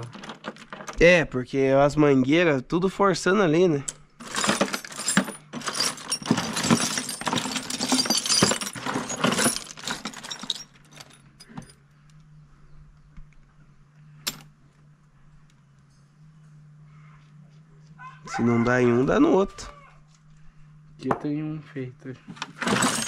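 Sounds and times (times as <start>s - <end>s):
metal bolts clinking and rattling: 0.0s - 1.0s, 3.9s - 11.8s, 22.4s - 23.0s
low steady hum: 0.0s - 23.0s.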